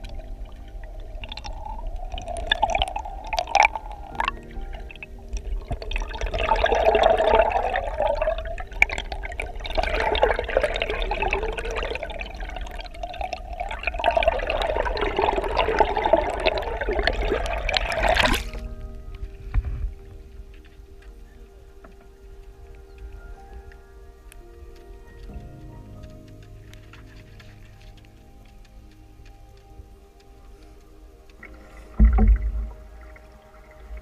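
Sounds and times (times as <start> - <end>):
underwater paddle strokes gurgling: 0.0 - 18.7, 31.4 - 34.0
low rumble: 0.0 - 21.0, 27.5 - 34.0.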